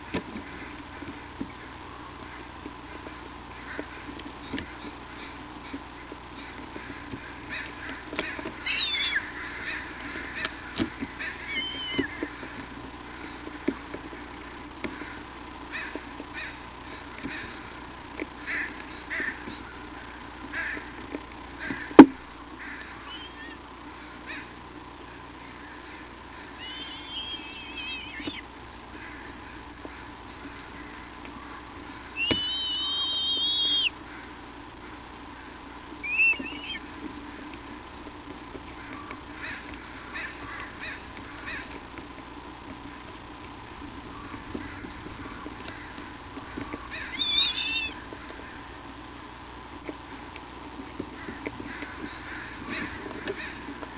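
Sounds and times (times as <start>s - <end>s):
eagle high whistled call: 8.6s - 9.3s, 11.4s - 12.1s, 23.0s - 23.6s, 26.6s - 28.4s, 32.2s - 34.0s, 36.0s - 36.8s, 47.1s - 48.0s.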